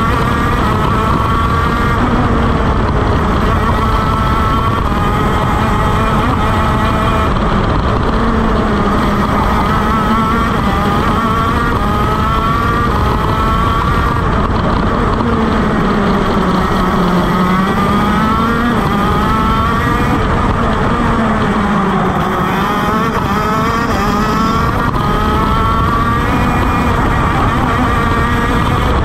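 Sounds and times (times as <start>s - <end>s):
kart engine revving: 0.0s - 29.0s.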